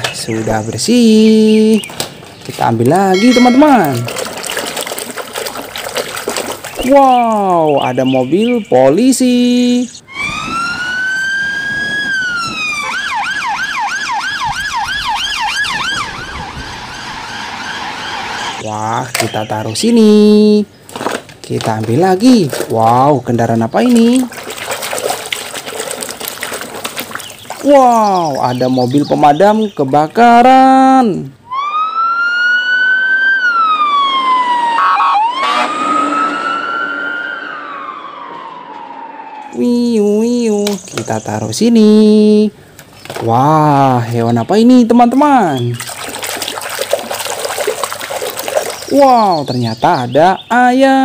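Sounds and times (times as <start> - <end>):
police siren wailing and yelping: 10.1 - 18.6, 31.4 - 40.1.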